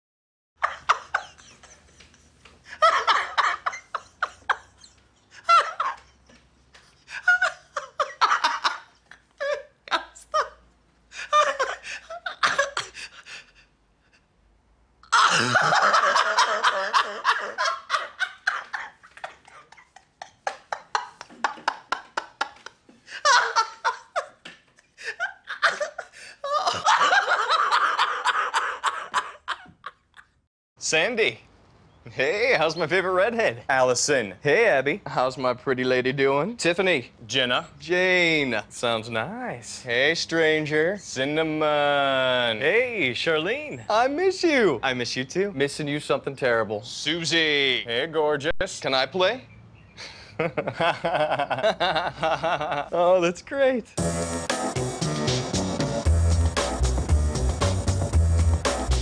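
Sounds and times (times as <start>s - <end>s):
person laughing: 15.1s - 30.3s.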